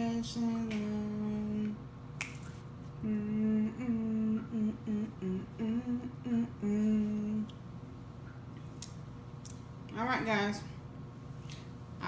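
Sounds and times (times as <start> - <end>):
woman humming a tune: 3.0 - 7.5.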